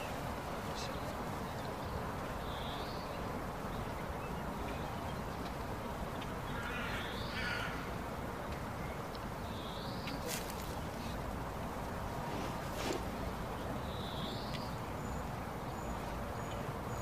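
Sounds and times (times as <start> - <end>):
birds calling: 0.0 - 17.0
steady rushing noise: 10.5 - 13.9.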